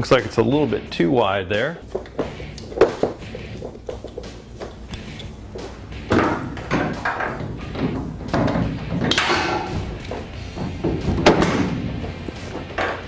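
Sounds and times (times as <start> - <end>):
background music: 0.0 - 13.0
metal tube frame knocking: 6.1 - 13.0.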